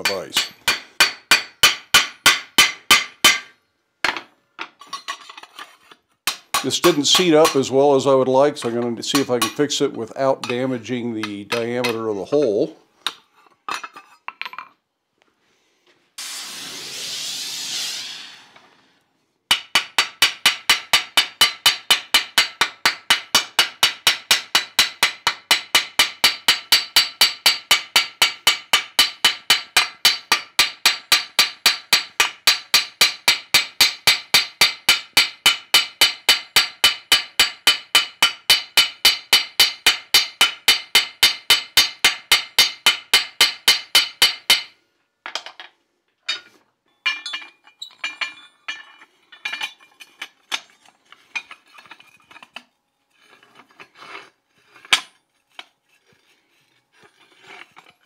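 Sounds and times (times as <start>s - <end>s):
metal clinks and knocks: 3.0s - 7.7s, 13.0s - 14.8s, 45.2s - 54.1s.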